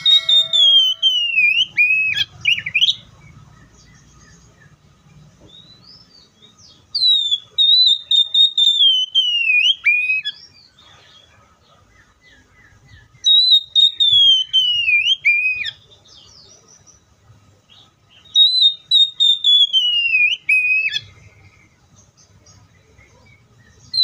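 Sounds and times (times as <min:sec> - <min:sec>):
bird singing whistled phrases: 0:00.0 - 0:03.1, 0:05.5 - 0:10.6, 0:13.0 - 0:16.4, 0:18.1 - 0:21.2
soft quiet bird notes: 0:00.0 - 0:24.0.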